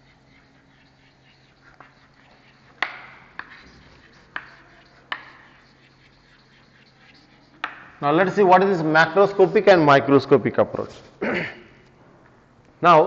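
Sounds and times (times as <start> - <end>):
chalk tapping and scratching: 0.0 - 9.6
steady low hum: 0.0 - 13.0.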